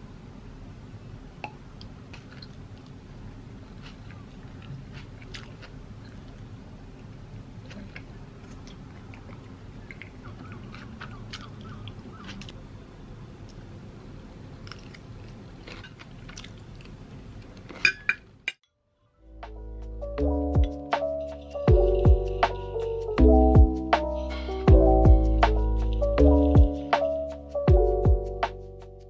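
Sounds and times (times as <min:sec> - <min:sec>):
chewing: 0:01.8 - 0:03.0, 0:03.6 - 0:12.6, 0:14.6 - 0:17.8
fork clinking on a plate: 0:17.8 - 0:18.2.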